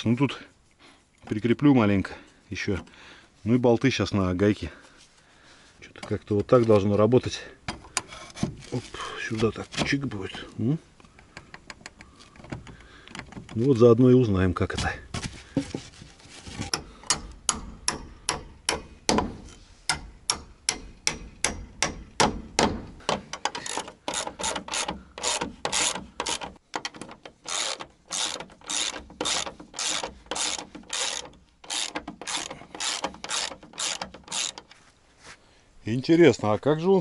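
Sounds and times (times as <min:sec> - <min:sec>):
ratchet wrench clicking: 0:27.4 - 0:34.7.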